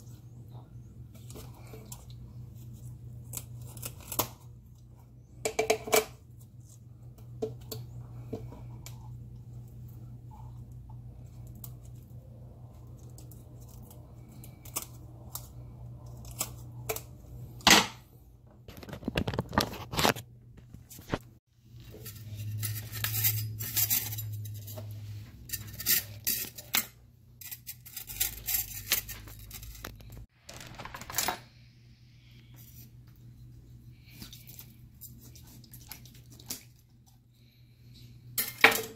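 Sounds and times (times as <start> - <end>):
low steady hum: 0.0 - 19.5
knife scraping fish: 21.8 - 29.9.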